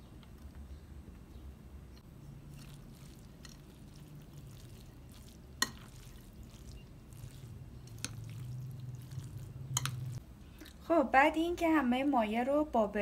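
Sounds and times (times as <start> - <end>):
low steady hum: 0.0 - 13.0
hand squelching rice mixture: 2.3 - 10.8.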